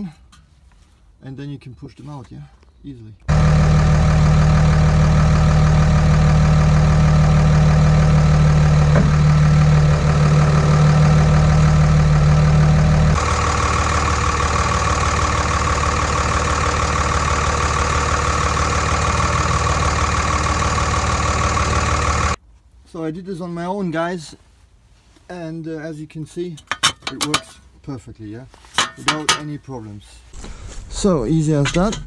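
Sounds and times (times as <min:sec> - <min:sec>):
diesel engine idling: 0:03.3 - 0:22.4.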